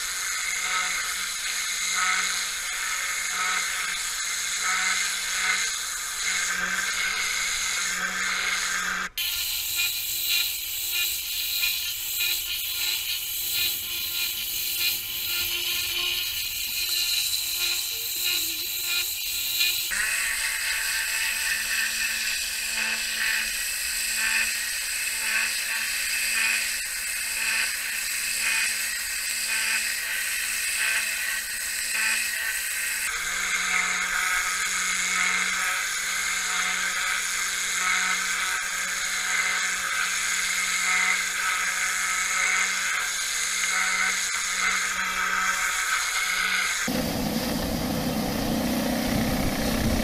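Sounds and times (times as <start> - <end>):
pressure-washer motor drone: 45.6 - 50.0.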